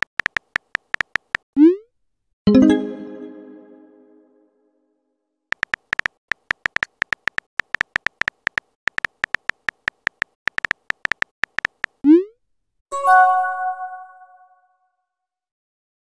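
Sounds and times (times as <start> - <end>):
typing clicks: 0.0 - 1.4, 5.5 - 12.0.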